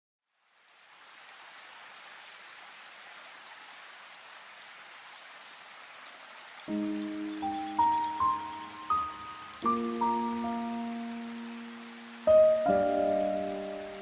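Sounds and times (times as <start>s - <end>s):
rain-like hiss: 0.2s - 14.0s
music: 6.7s - 14.0s.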